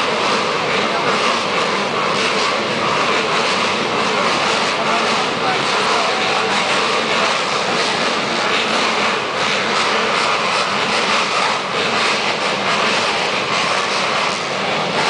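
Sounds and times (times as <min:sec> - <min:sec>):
motocross bikes engines running: 0:00.0 - 0:15.0.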